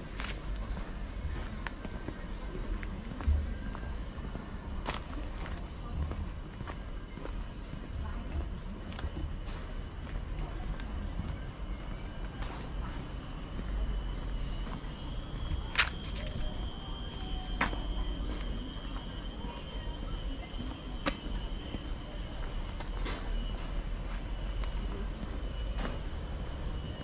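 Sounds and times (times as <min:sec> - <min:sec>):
insects droning shrilly: 0:05.7 - 0:27.0.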